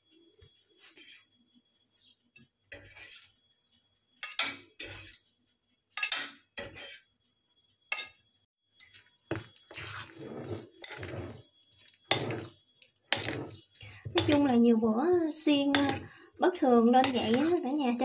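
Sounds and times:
spoon stirring batter in bowl: 2.7s - 3.5s, 4.2s - 5.3s, 6.0s - 7.2s, 8.8s - 18.0s
fork clinking on tray and plate: 6.0s - 6.9s, 15.7s - 16.2s.

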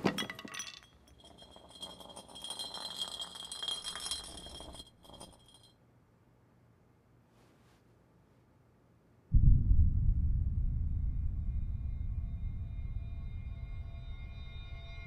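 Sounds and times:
glass bottle rattling on floor: 0.0s - 5.8s.

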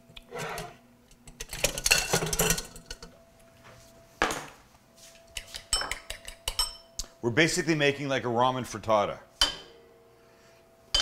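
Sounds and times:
metal cookware clattering: 0.4s - 3.2s.

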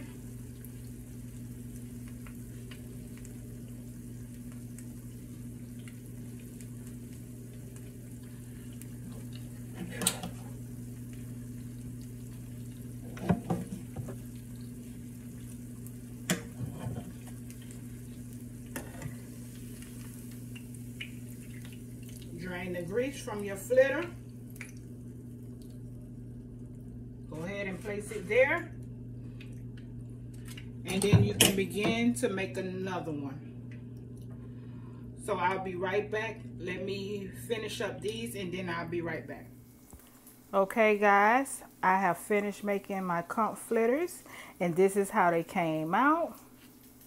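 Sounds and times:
food sizzling in oil: 0.0s - 25.3s
low hum: 0.0s - 38.7s.

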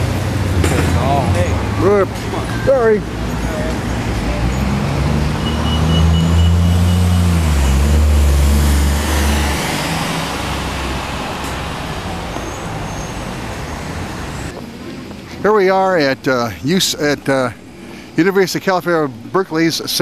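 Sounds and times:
vehicle engine passing by: 0.0s - 14.6s
traffic noise: 0.0s - 20.0s.

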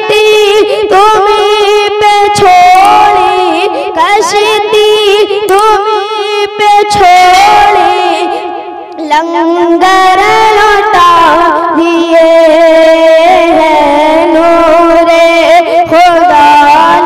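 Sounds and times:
boy singing into a microphone: 0.0s - 17.0s.

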